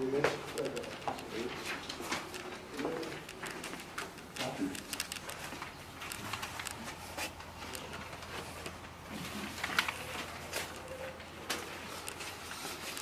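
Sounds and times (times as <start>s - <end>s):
paper rustling: 0.0s - 13.0s
small clicks and knocks: 0.3s - 8.8s.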